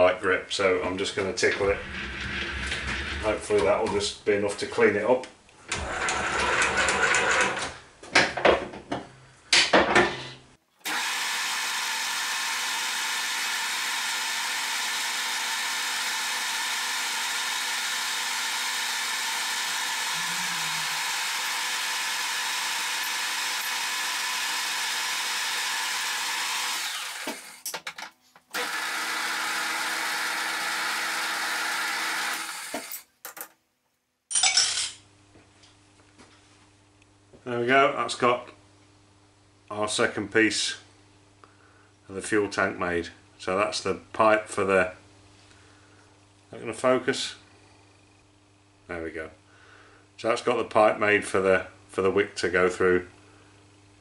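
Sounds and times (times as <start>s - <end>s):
metal lathe running: 10.9s - 27.4s, 28.6s - 32.9s.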